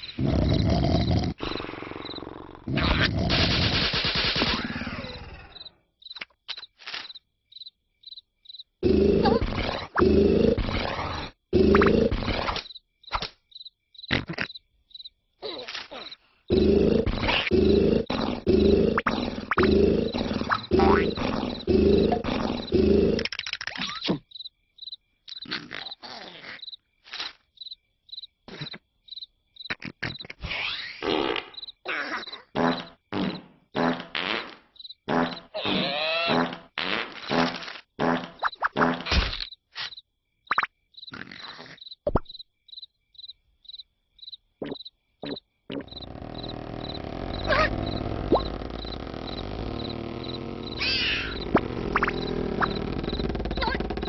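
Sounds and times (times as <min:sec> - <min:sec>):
cartoon snoring: 0:00.0 - 0:05.6, 0:08.8 - 0:12.6, 0:16.5 - 0:23.3, 0:45.2 - 0:54.0
high cricket chirps: 0:03.6 - 0:30.3, 0:31.1 - 0:33.1, 0:34.7 - 0:35.5, 0:39.4 - 0:54.0
cartoon sound bursts: 0:47.4 - 0:48.5, 0:50.7 - 0:52.7.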